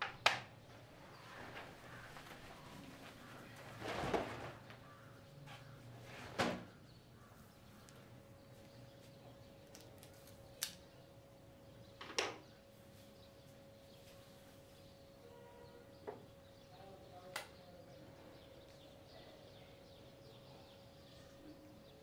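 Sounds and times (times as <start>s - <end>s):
knocks and rustles: 1.2s - 6.8s.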